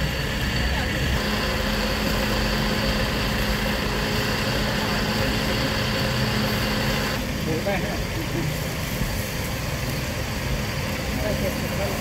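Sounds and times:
electric fan humming: 0:00.0 - 0:07.4.

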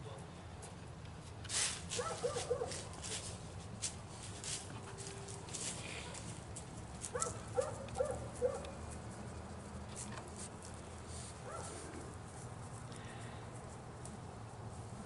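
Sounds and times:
dog barking: 0:02.0 - 0:02.9, 0:07.1 - 0:08.7, 0:11.5 - 0:11.8.

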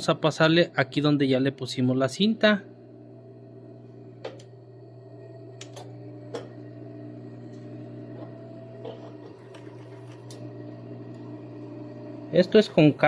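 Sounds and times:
sewing machine running: 0:04.6 - 0:13.0.

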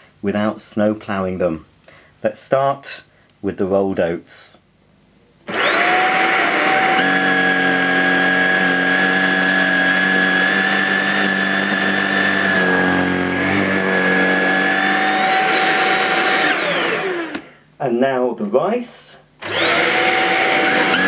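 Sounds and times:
vacuum floorhead sucking oats: 0:05.5 - 0:17.5, 0:19.4 - 0:21.0
vacuum motor whine: 0:05.5 - 0:17.5, 0:19.4 - 0:21.0.

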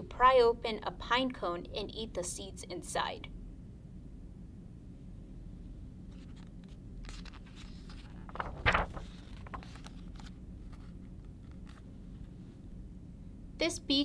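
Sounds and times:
page turning swish: 0:06.1 - 0:12.3
paper page rustling: 0:06.1 - 0:12.3.

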